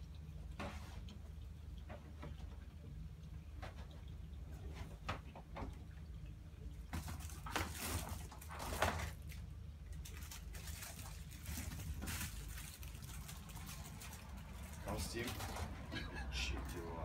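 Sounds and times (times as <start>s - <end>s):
foil ducting crinkling: 6.9s - 17.0s.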